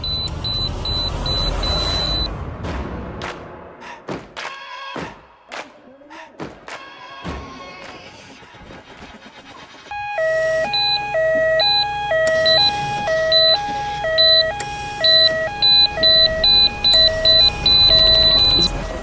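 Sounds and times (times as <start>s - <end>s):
ambulance two-tone siren: 0.0s - 2.3s, 9.9s - 19.0s.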